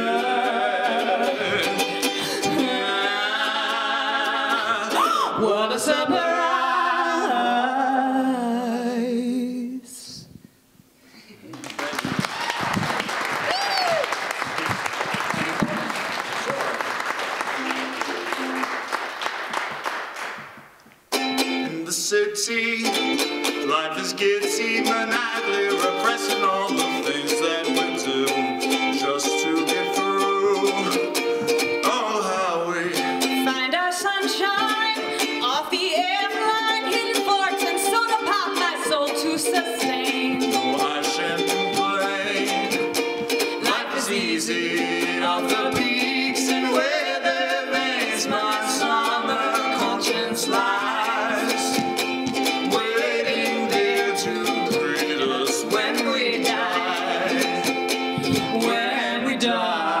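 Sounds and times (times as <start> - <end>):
strummed ukulele: 0.0 - 7.4, 17.4 - 20.3, 21.1 - 60.0
man and woman singing: 0.0 - 10.4, 21.6 - 60.0
audience applause: 11.5 - 20.6.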